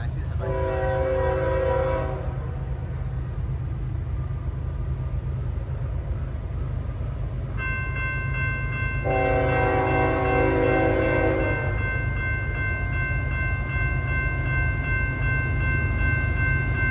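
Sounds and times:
train air horn: 0.4 - 2.6, 9.0 - 11.8.

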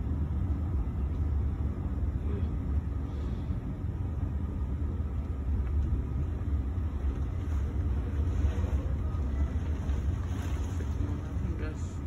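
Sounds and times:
wind and rain through window: 0.0 - 12.0.

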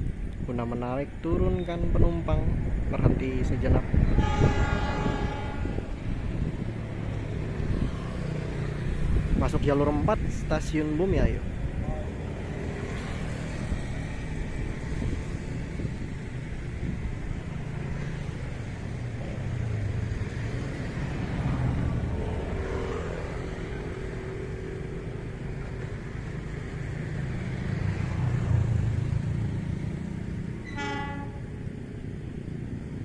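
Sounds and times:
low engine rumble: 0.0 - 33.0
short horn toot: 4.2 - 5.9, 30.6 - 31.4.

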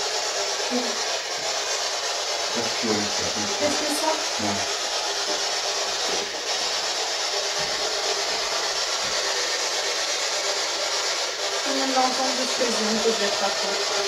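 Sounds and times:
voice-like fragments in static: 2.6 - 4.7
radio static hiss: 2.6 - 5.4.

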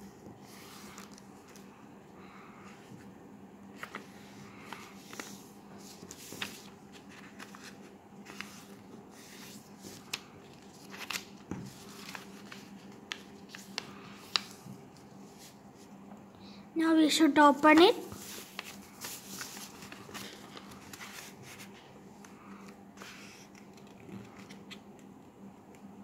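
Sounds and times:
faint steady hum: 0.0 - 26.0
paper rustling and crackling: 0.5 - 1.7, 3.7 - 15.6, 17.8 - 21.9.

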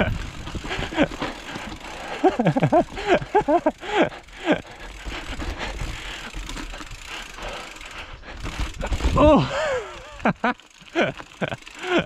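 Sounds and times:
wind rumble on microphone: 0.0 - 1.1
bike hub ticking rapidly: 0.0 - 12.0
bike rattling: 0.0 - 12.0.

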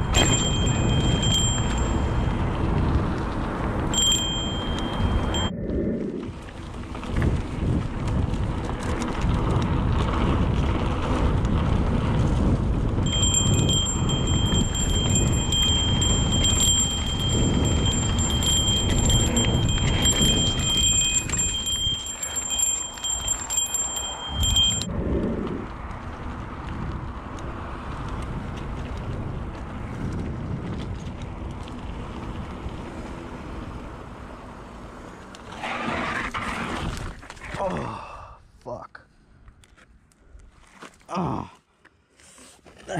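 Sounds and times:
wind on microphone: 0.0 - 33.0
bike tyres rumbling on dirt: 0.0 - 38.1
disc brakes squealing: 13.1 - 24.9, 35.4 - 36.8.

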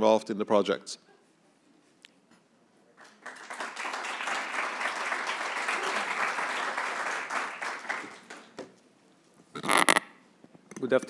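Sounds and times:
audience applauding: 3.0 - 8.7.

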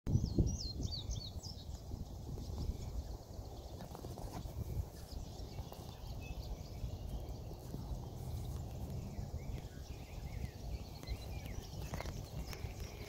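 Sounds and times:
birds chirping faintly: 0.1 - 13.0.

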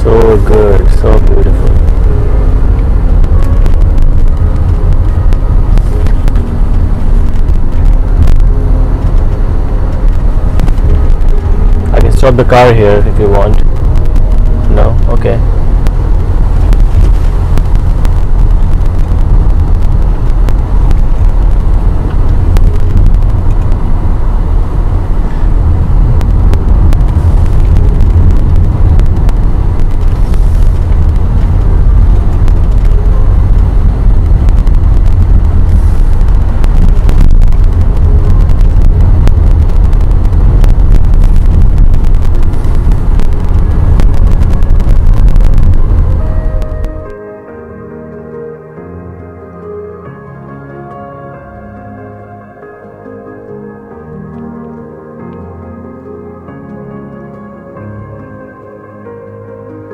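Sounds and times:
car engine and tyre rumble: 0.0 - 59.9.

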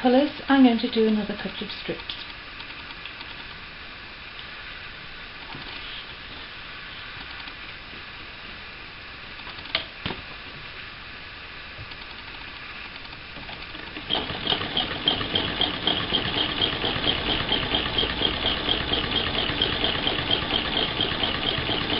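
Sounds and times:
sewing machine stitching: 13.5 - 21.9.

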